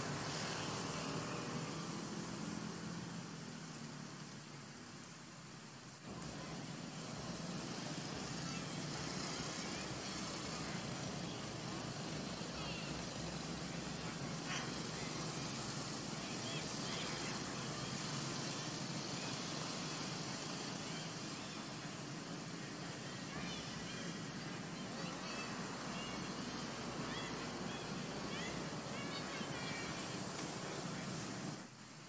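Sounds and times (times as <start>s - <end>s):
outdoor background noise: 0.0s - 32.0s.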